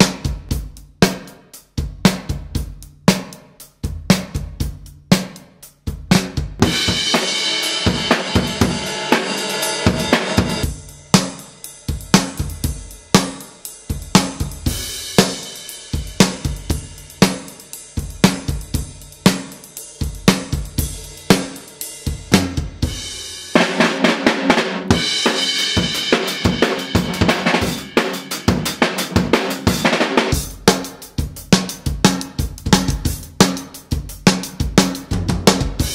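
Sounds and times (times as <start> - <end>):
drum kit groove: 0.0 - 35.9
snare drum: 0.0 - 35.9
cymbals ringing: 6.9 - 10.7.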